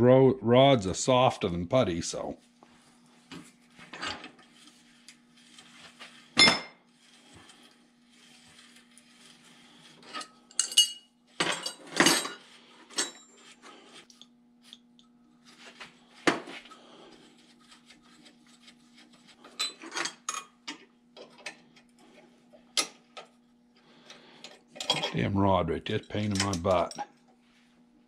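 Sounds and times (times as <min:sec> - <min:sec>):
steady low hum: 0:00.0 - 0:28.0
hand tools clinking on metal rod: 0:25.9 - 0:27.0.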